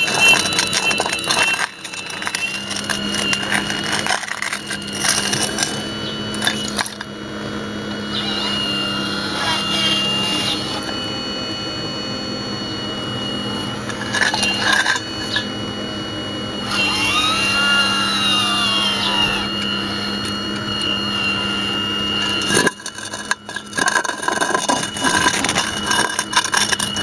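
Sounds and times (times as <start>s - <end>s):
concrete rubble knocking and scraping: 0.0s - 7.1s, 13.7s - 15.5s, 22.3s - 27.0s
model excavator motors whining: 0.0s - 27.0s.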